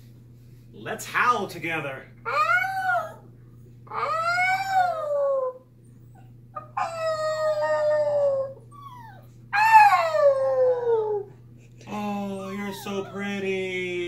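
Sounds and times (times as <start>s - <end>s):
dog howling: 2.2s - 3.2s, 3.9s - 5.6s, 6.6s - 11.3s, 12.0s - 14.0s.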